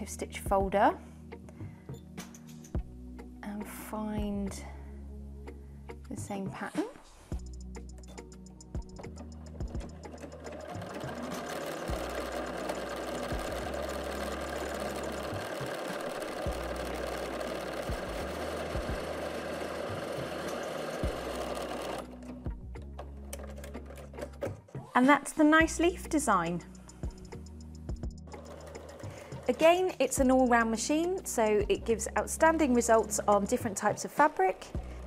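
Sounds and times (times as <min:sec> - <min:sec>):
sewing machine stitching: 0:09.7 - 0:24.7, 0:28.3 - 0:31.4.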